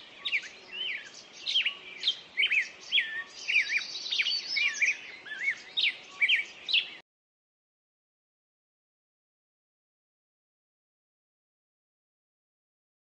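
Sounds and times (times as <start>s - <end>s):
songbirds singing: 0.0s - 7.0s.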